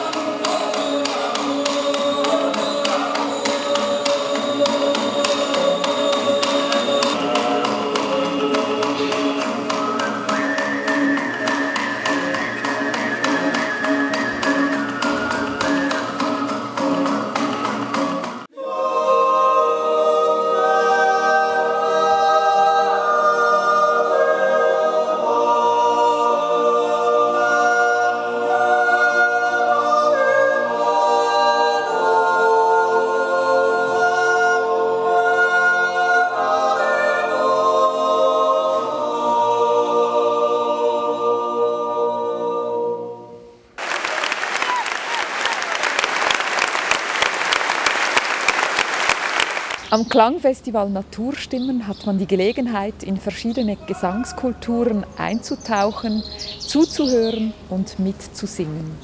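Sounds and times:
galloping beat of taps: 0.0 - 18.4
men's choir singing a cappella: 0.0 - 43.6.

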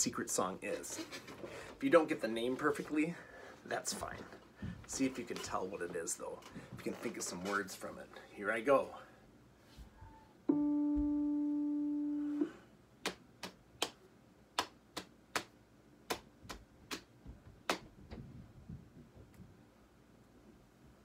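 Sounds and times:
electric piano held note: 10.5 - 12.6.

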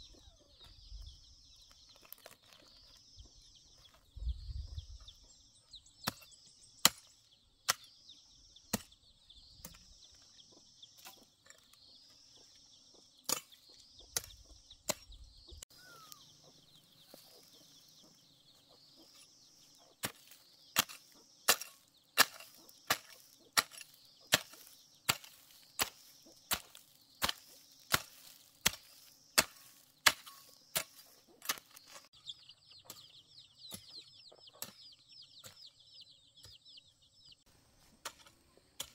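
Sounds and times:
high chirping: 2.6 - 37.5
hoe chopping hard ground: 6.0 - 8.0, 8.6 - 9.0, 13.2 - 15.2, 19.0 - 32.2, 37.9 - 38.9.

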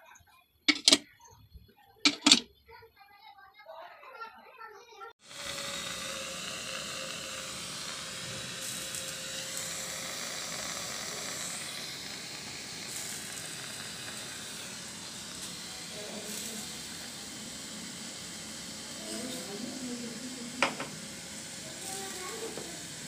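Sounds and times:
steady hiss: 5.2 - 23.0.

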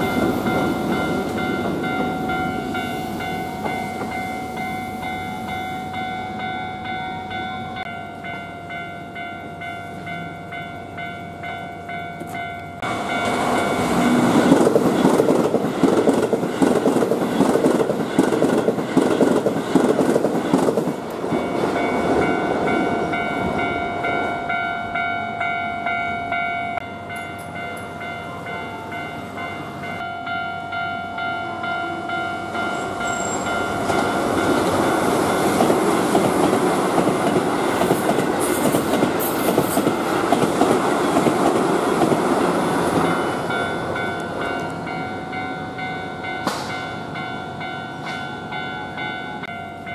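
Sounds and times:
train wheels rumbling and clattering: 0.0 - 5.6, 12.0 - 23.9, 32.6 - 47.3
level-crossing warning bell ringing: 0.0 - 19.5, 20.2 - 49.9.

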